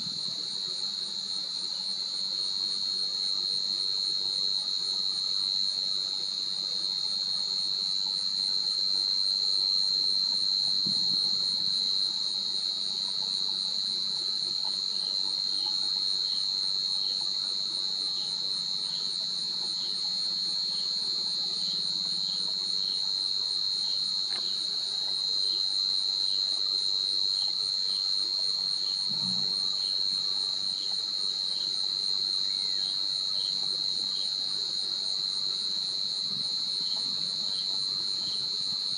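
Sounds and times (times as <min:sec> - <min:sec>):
shrill insect chorus: 0:00.0 - 0:38.9.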